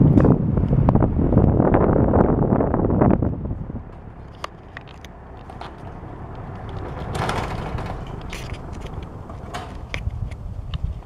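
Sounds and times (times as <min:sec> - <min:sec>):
box fan humming: 0:00.0 - 0:11.0
light clicks and knocks: 0:03.9 - 0:11.0.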